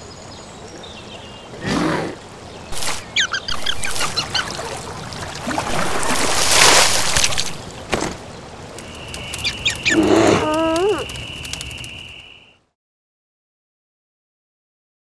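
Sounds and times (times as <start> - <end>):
high squeaky cartoon chirps: 2.7 - 4.7, 9.3 - 11.2
loud rushing splash: 2.7 - 8.2.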